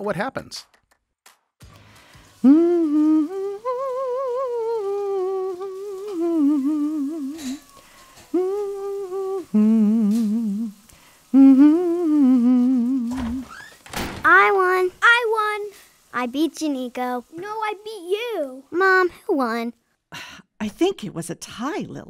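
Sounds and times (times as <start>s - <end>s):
woman humming: 2.4s - 13.6s.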